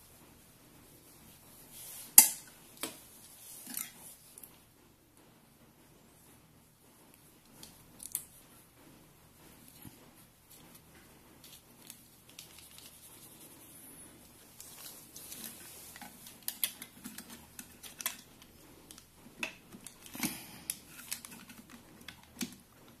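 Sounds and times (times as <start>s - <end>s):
soft rustling: 5.9s - 20.1s.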